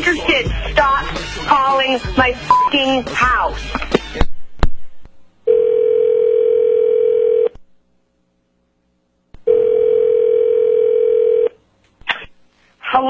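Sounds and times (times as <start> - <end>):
telephone ringback tone: 5.5 - 7.5, 9.5 - 11.6.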